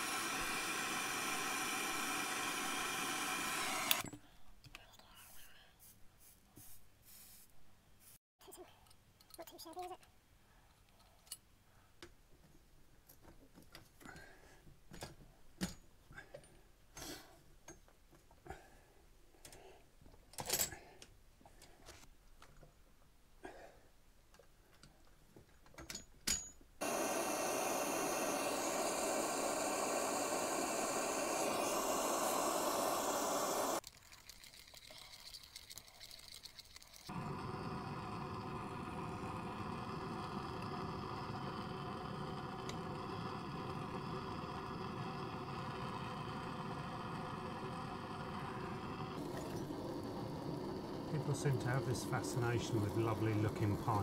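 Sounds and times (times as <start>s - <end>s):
loud rushing hiss: 0.0s - 4.0s, 26.8s - 33.8s, 37.1s - 54.0s.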